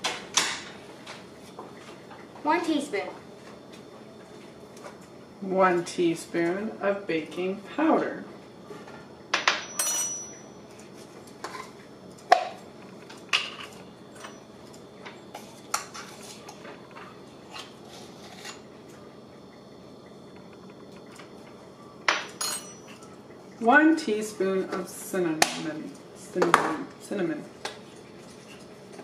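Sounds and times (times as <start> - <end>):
metal measuring spoons clinking: 9.6 - 10.4, 22.4 - 23.0.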